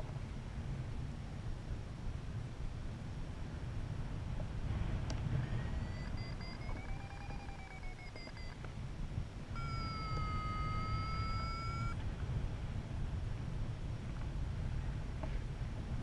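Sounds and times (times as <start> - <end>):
wind rushing over microphone: 0.0 - 7.6, 8.8 - 16.0
low continuous tone: 0.0 - 16.0
variometer beeps rising and falling: 5.4 - 8.6, 9.6 - 12.0.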